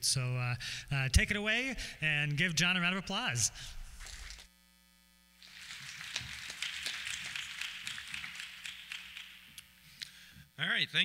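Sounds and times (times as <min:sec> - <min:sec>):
audience applauding: 0:05.4 - 0:09.7.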